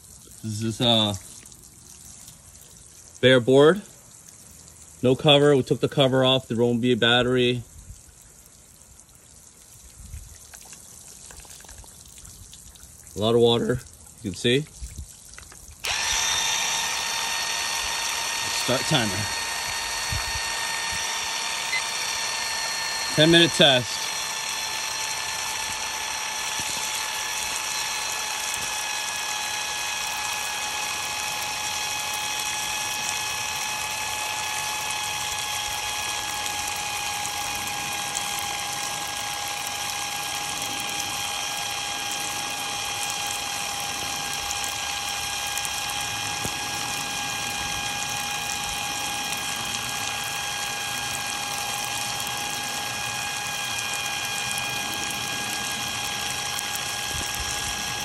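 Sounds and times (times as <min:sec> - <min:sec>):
water spraying: 0:00.0 - 0:07.6, 0:08.4 - 0:58.0
impact driver motor whining: 0:15.8 - 0:58.0.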